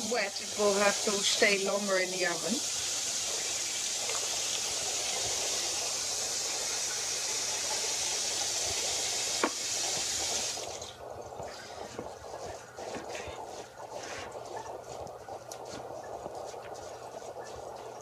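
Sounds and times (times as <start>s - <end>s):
water pouring into a bowl: 0.2s - 15.0s
wooden spoon stirring rice: 11.4s - 18.0s.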